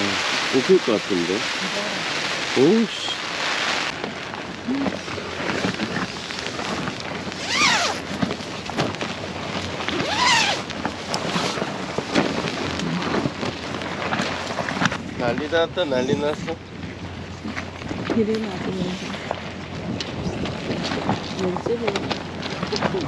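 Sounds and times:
tent fabric flapping: 0:03.8 - 0:15.4.

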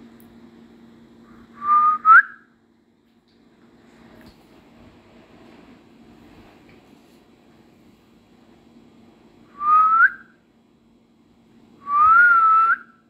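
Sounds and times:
rising whistles: 0:01.5 - 0:02.5, 0:09.5 - 0:10.4, 0:11.8 - 0:13.0.

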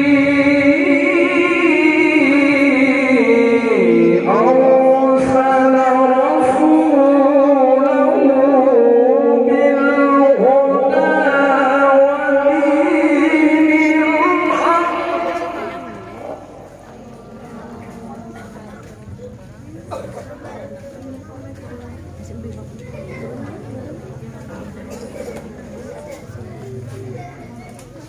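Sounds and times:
man reciting melodically through microphone: 0:00.0 - 0:16.7.

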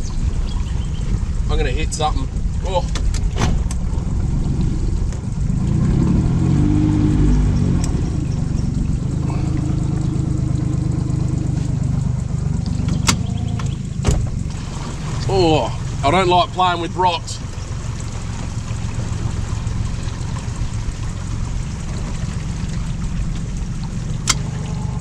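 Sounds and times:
outboard motor running: 0:00.0 - 0:25.0
sharp knocks: 0:12.9 - 0:14.5.

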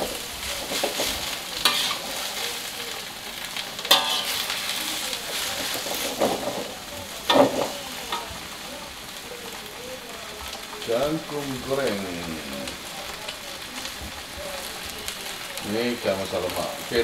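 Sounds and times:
metal spatula scraping a pan: 0:00.0 - 0:02.6, 0:03.7 - 0:08.3
vegetables sizzling in a wok: 0:00.0 - 0:17.0.

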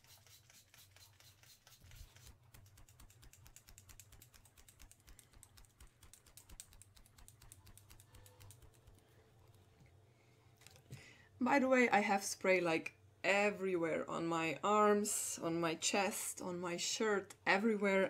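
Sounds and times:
spray bottle pumping: 0:00.0 - 0:09.0
hand fan waving with faint ticks: 0:00.0 - 0:09.7.

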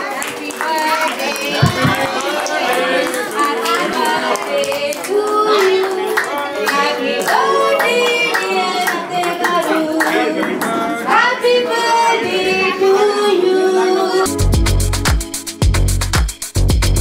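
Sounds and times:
people clapping along: 0:00.0 - 0:11.4
woman singing into a microphone: 0:11.1 - 0:14.3.

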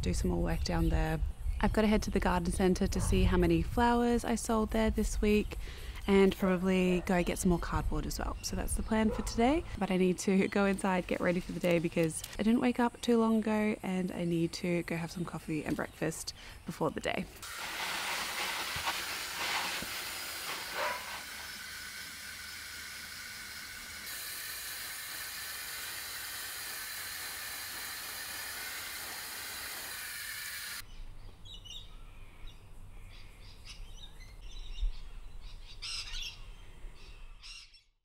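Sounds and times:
birds chirping: 0:05.1 - 0:17.4, 0:20.8 - 0:21.6, 0:30.8 - 0:38.0
hose spray nozzle hissing: 0:17.4 - 0:30.8.

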